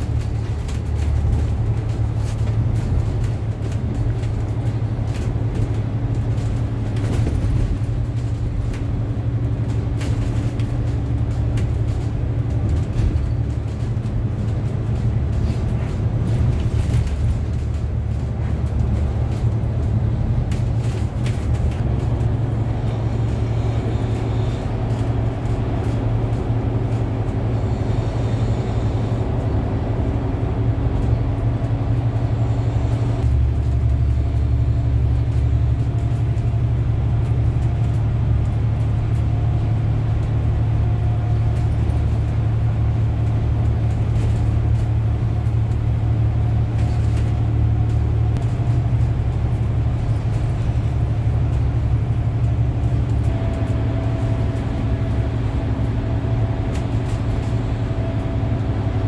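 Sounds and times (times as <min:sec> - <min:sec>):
bus engine drone: 0:00.0 - 0:59.0
road noise: 0:00.0 - 0:59.0.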